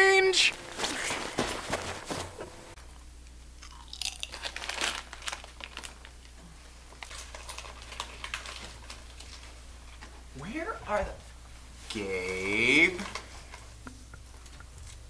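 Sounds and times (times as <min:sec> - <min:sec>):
chip bag crinkling: 0:03.6 - 0:06.3, 0:06.9 - 0:09.6
potato chips crunched and chewed: 0:03.6 - 0:06.3, 0:06.9 - 0:09.6.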